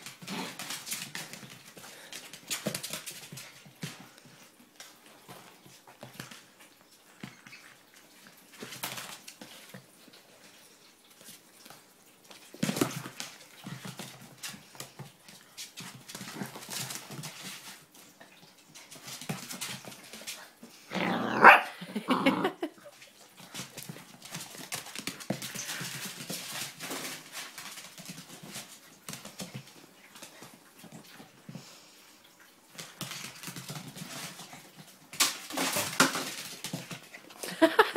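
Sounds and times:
puppy barking: 21.3 - 21.8.

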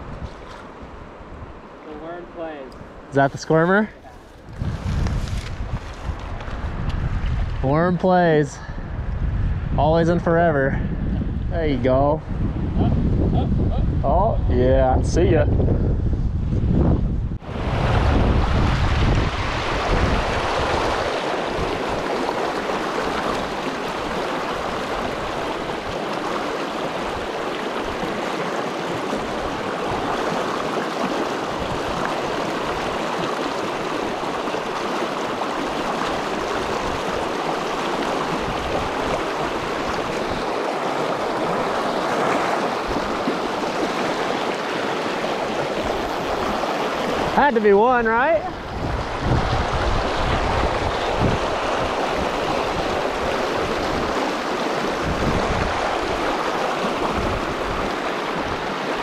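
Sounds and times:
shallow river rushing: 0.0 - 6.8, 17.4 - 59.0
wind buffeting microphone: 4.1 - 59.0.

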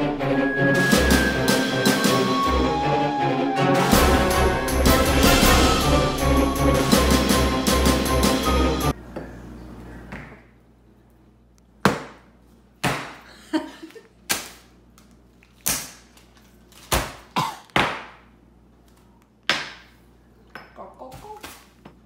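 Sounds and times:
brief music: 0.0 - 9.0.

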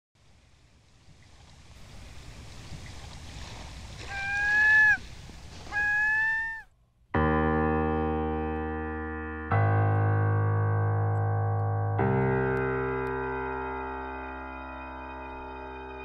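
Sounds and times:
wash of noise: 0.2 - 6.5
short pitched calls: 4.0 - 6.7
electric piano chord: 7.2 - 16.0.

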